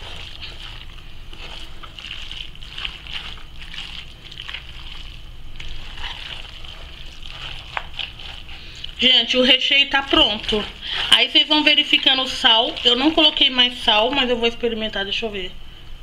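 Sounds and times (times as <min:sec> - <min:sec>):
spoon stirring wet filling: 0:00.0 - 0:14.4
spoon scraping metal pot: 0:05.6 - 0:13.6.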